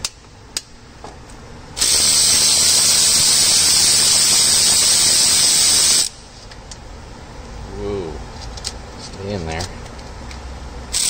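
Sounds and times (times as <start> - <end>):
power ratchet whirring: 1.8 - 6.2.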